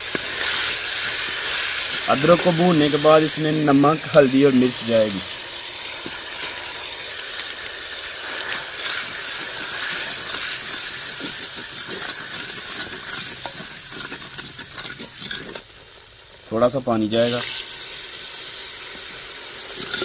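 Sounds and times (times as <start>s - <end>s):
spices sizzling in hot oil: 0.0s - 20.0s
wooden spoon scraping pot: 8.3s - 15.7s.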